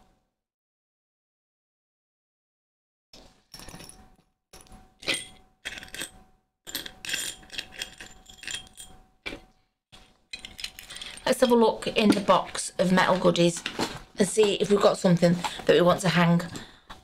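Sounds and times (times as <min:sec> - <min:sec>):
small metal objects jingling: 0:06.7 - 0:09.0, 0:10.3 - 0:11.6.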